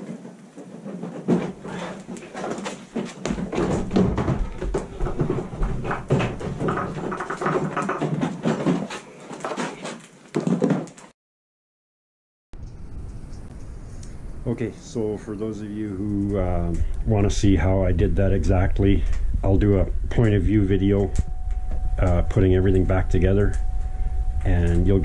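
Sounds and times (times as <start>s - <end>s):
plastic panels knocking and clattering: 0.0s - 11.1s.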